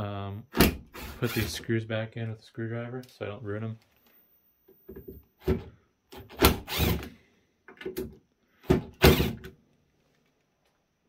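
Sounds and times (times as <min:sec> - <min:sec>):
cordless screwdriver running: 0:06.4 - 0:07.1.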